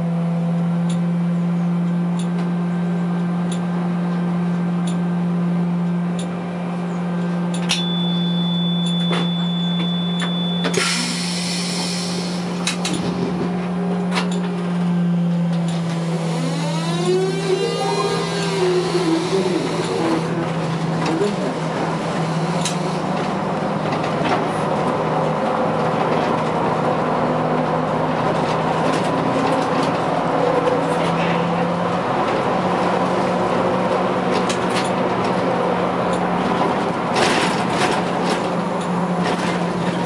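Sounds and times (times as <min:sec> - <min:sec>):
high steady beep: 0:07.8 - 0:10.8
air hiss: 0:10.8 - 0:12.6.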